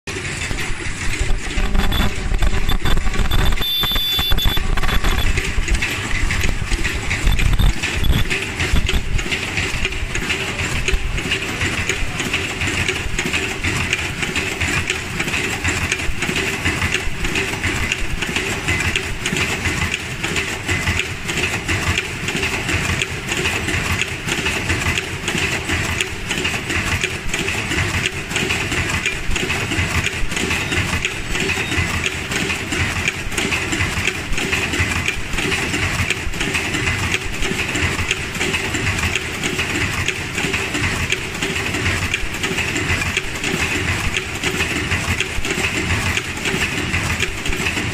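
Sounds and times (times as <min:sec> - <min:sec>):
low machine rumbling: 0:00.1 - 0:18.9
machine clatter of rapid clicks: 0:00.1 - 0:47.9.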